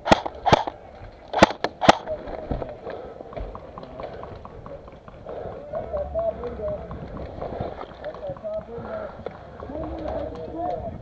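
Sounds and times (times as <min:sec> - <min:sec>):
airsoft gun snaps: 0:00.0 - 0:02.1
fast patter of ticks: 0:02.9 - 0:11.0.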